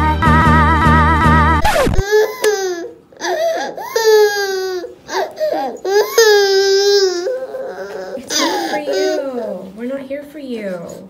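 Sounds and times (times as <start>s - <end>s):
toddler crying: 2.0s - 9.7s.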